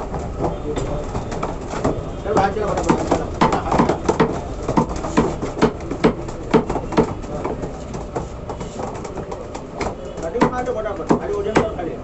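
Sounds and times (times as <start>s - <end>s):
meat cleaver chopping on wood: 2.4s - 7.7s, 9.2s - 11.9s.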